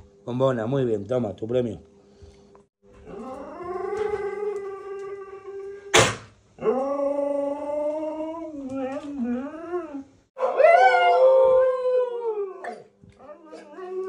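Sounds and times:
husky howling: 3.0s - 6.0s, 6.6s - 14.0s.

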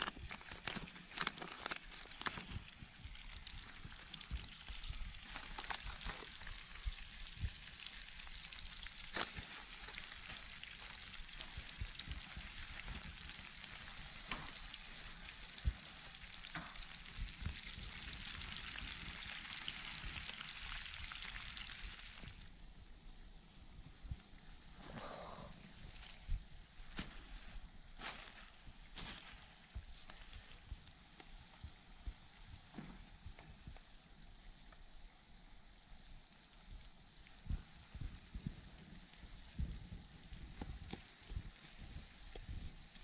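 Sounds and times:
onions sizzling in a frying pan: 2.2s - 22.4s.

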